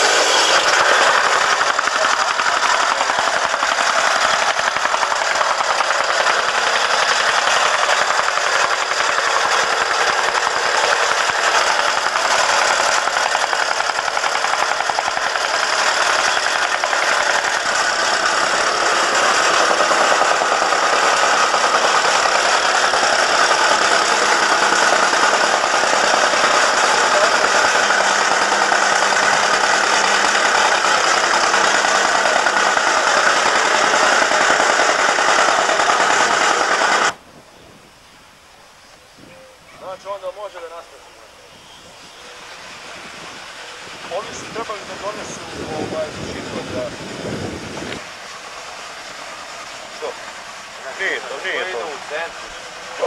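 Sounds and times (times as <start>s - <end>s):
vibratory rammer compacting soil: 0.0s - 37.2s, 41.5s - 53.0s.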